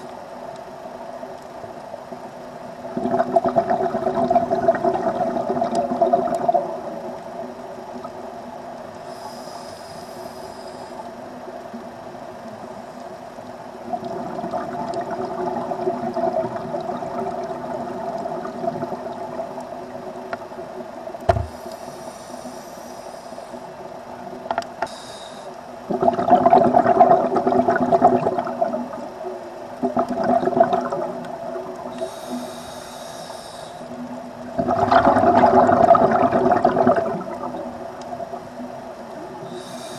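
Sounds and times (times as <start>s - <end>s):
exhaled bubbles rushing: 2.8s - 7.2s, 13.8s - 20.0s, 25.9s - 29.2s, 29.8s - 32.1s, 34.5s - 38.5s
regulator hissing inhale: 9.0s - 11.2s, 21.4s - 23.8s, 24.8s - 25.6s, 31.9s - 34.1s, 39.4s - 39.9s.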